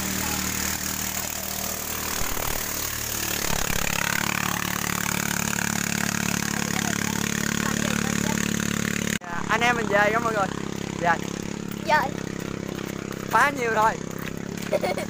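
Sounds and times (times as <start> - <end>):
engine running with fast pulse: 0.0 - 15.0.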